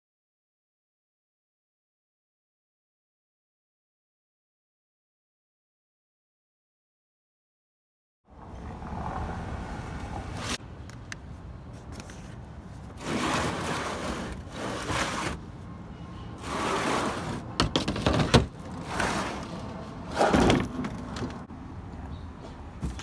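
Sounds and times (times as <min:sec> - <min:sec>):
plastic trays scraping across truck bed: 0:12.8 - 0:15.4, 0:16.4 - 0:21.4.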